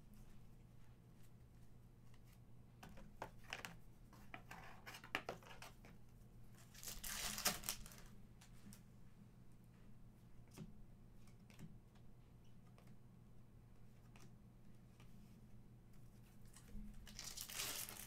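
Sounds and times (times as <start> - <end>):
foil wrapper crinkling: 6.7 - 8.0, 17.1 - 18.0
foil wrapper tearing open: 6.8 - 8.0, 17.1 - 18.0.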